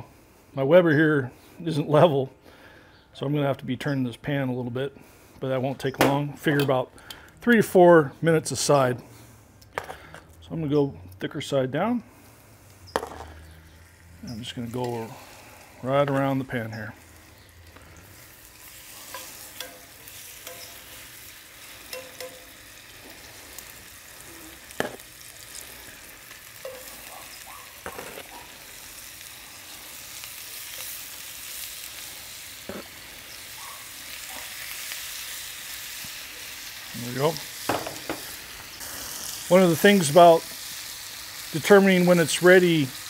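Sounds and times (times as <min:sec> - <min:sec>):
chicken sizzling in oil: 0:12.1 - 0:43.0
metal tongs clicking: 0:19.1 - 0:20.9, 0:21.9 - 0:22.5.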